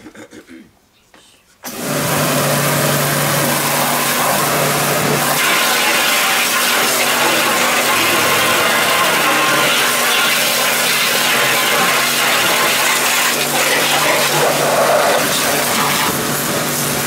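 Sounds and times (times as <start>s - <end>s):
pressure washer motor hum: 1.6s - 17.0s
high-pressure water jet hissing: 1.7s - 17.0s.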